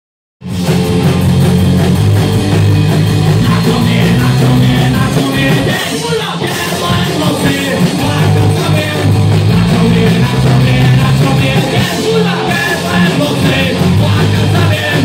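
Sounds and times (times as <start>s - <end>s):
drum kit: 0.4s - 15.0s
electric guitar: 0.4s - 15.0s
person singing: 3.4s - 15.0s.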